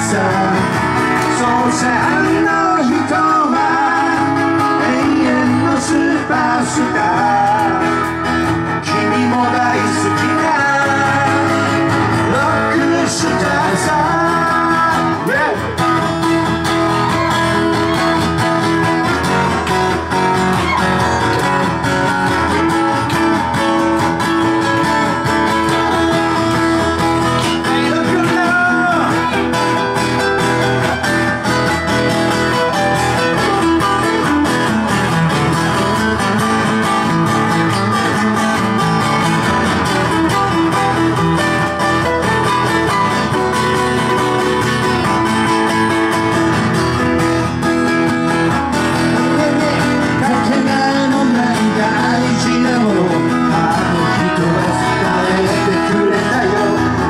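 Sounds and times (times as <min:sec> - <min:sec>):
person singing: 0:00.0 - 0:31.6, 0:48.8 - 0:57.0
strummed guitar: 0:00.0 - 0:57.0.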